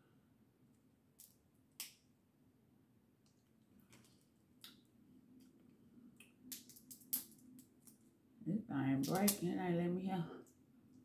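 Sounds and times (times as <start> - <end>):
crab shell cracking: 1.2 - 2.1, 6.1 - 8.0, 9.1 - 9.4.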